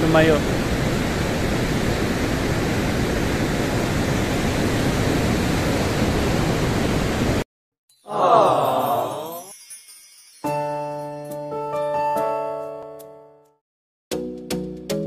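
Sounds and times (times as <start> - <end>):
heavy surf: 0.0 - 7.4
wind: 0.0 - 7.4.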